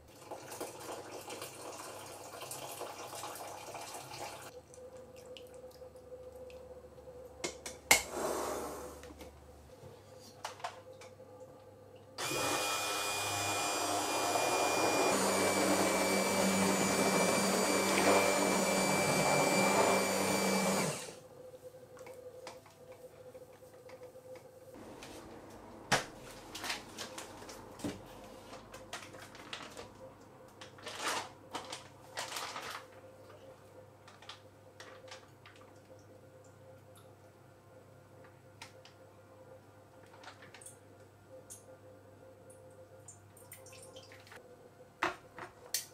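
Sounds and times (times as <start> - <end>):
immersion blender running: 12.2 - 21.2.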